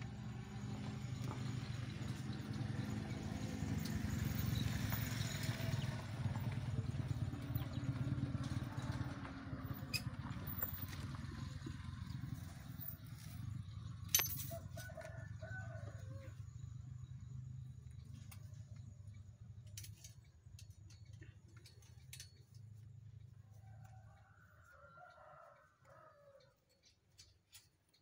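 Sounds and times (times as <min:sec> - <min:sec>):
low motor rumble: 0:00.0 - 0:19.8.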